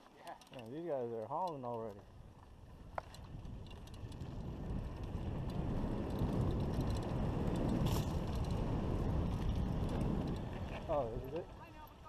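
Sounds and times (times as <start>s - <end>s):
bike rattling: 0.0s - 12.0s
wind on microphone: 2.6s - 11.4s.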